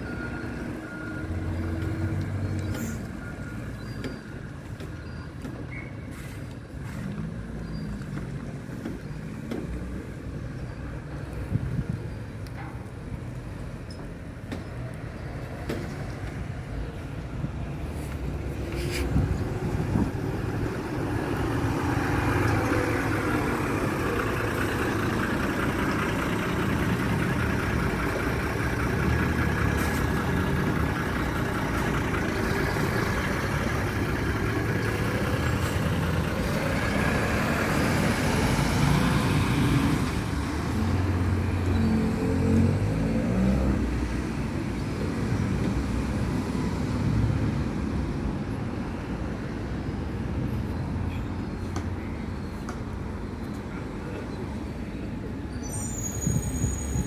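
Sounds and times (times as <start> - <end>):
coach diesel engine pulling away: 0.0 - 11.6, 16.0 - 46.0
road traffic noise: 0.0 - 57.0.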